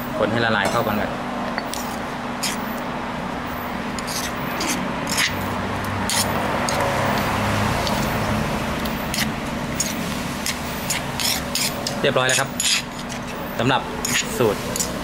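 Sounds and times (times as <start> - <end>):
spoon scraping stone mortar: 1.6 - 2.8, 3.9 - 8.2, 8.8 - 15.0.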